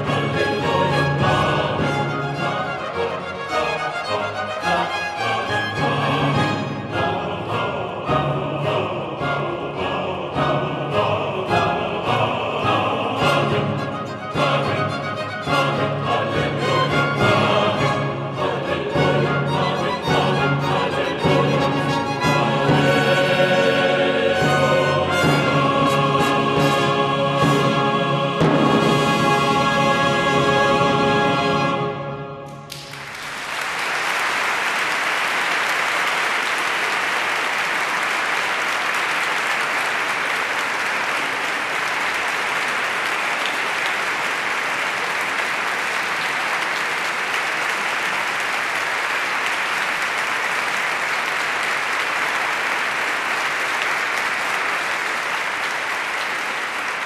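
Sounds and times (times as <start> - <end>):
choir and orchestra chord: 0.0 - 33.1
audience applauding: 32.7 - 57.0.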